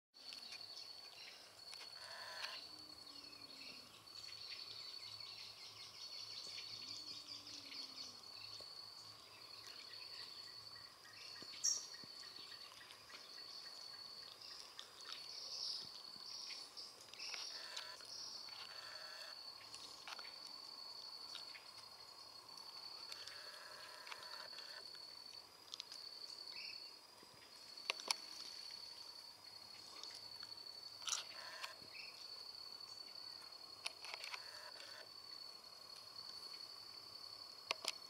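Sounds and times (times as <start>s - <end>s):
high-pitched insect trill: 0.2s - 38.0s
faint bird calls: 10.0s - 20.4s.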